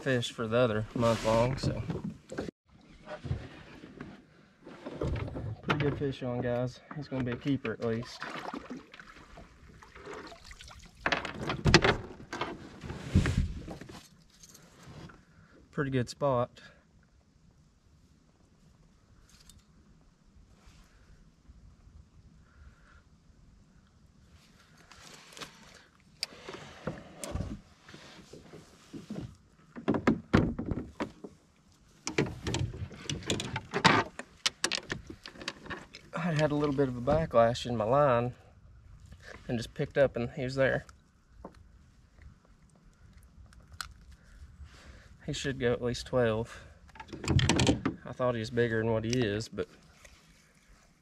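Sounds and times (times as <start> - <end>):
water splashing: 7.9 - 11.0.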